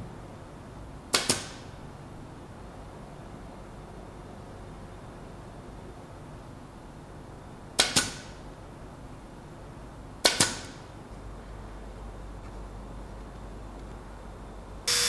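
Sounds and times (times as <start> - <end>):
nail gun firing: 1.1 - 1.7, 7.8 - 8.4, 10.2 - 10.8.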